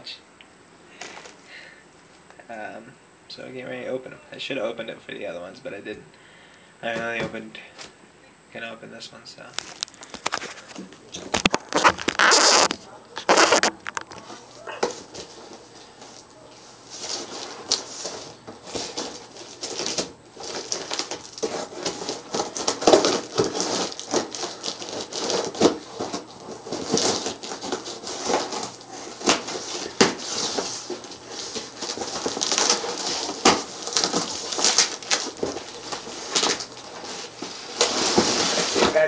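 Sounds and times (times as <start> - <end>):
cardboard crackling and rustling: 9.5 - 39.0.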